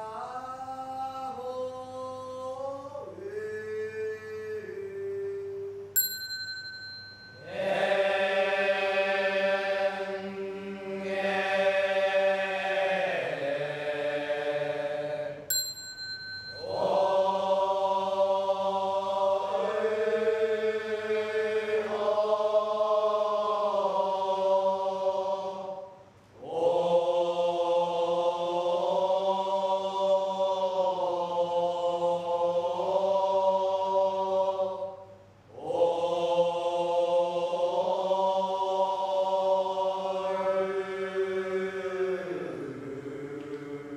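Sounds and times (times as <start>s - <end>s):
metal bell ringing: 6.0s - 7.5s, 15.5s - 16.9s
group chanting: 7.4s - 15.5s, 16.6s - 43.9s.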